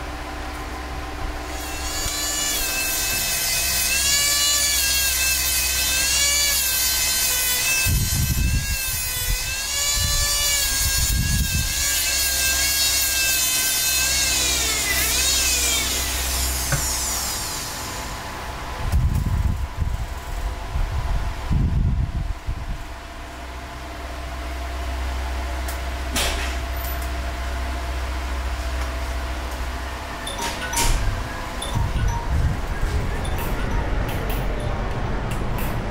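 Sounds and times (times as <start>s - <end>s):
rotary tool grinding stone: 1.5s - 17.8s.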